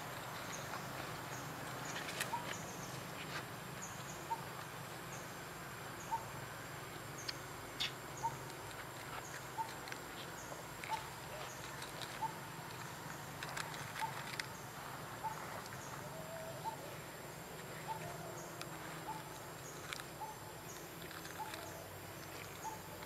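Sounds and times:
steady background hiss: 0.0 - 23.0.

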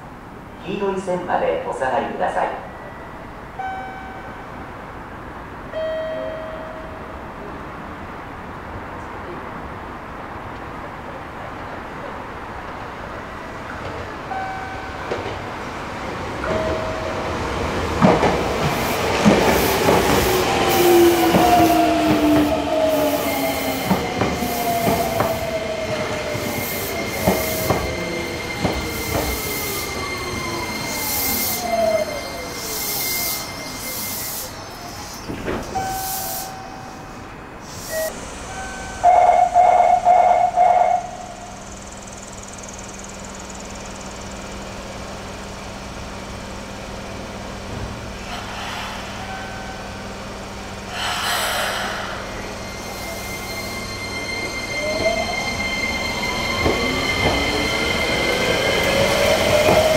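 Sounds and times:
electric train inverter whine: 13.1 - 59.9
high brake squeal: 20.7 - 42.8, 48.2 - 50.3, 50.9 - 59.9.

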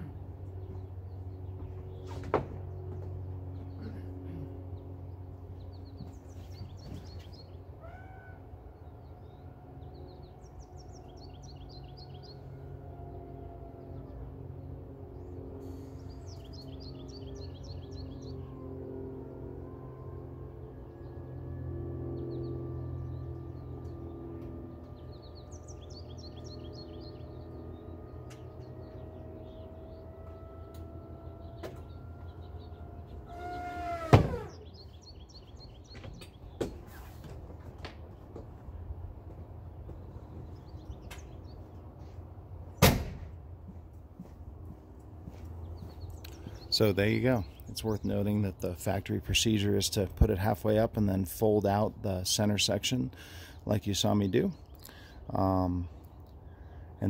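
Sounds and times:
birds chirping: 0.0 - 42.9, 43.6 - 57.0
power top motor hum: 8.1 - 36.6
loud thump of car top: 34.0 - 34.5, 42.8 - 43.3.

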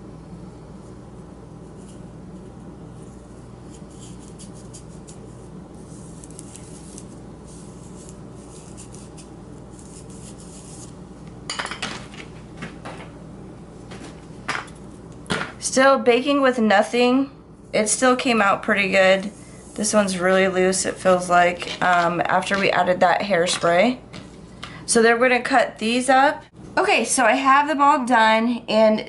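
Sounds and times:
low steady hum: 0.0 - 29.0
faint scratchy rubbing: 3.0 - 10.9.

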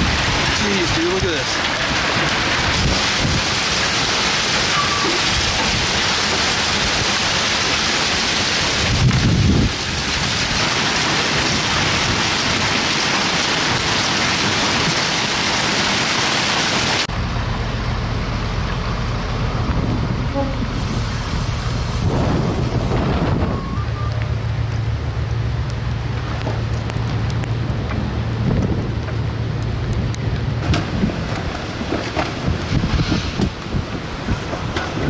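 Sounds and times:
heavy wind-driven rain: 0.0 - 35.0
low thunder rumble: 8.6 - 12.7, 17.1 - 35.0.

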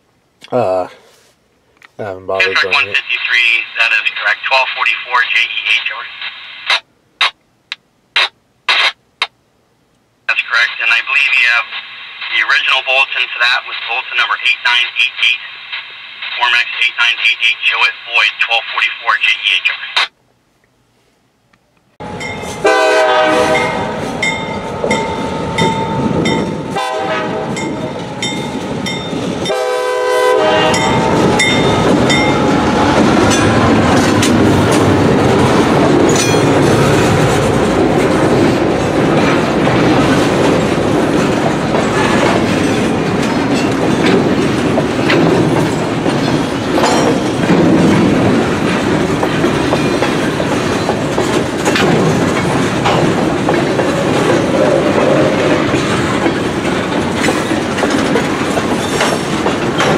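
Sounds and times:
train horn blasts: 22.0 - 24.1, 25.2 - 27.8, 29.4 - 31.8
train rumbling past: 22.0 - 59.9
wheels clattering over rail joints: 30.8 - 59.9.

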